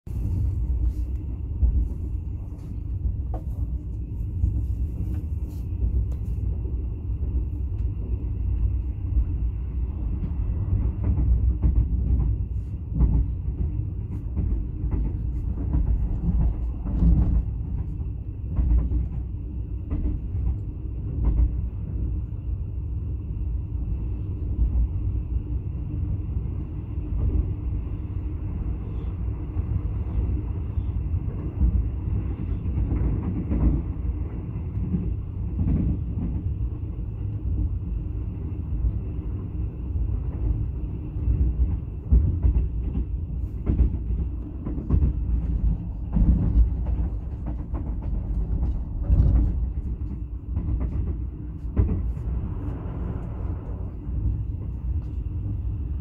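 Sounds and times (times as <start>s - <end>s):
train carriage rumbling: 0.0s - 56.0s
clacks and rattles: 41.5s - 53.4s.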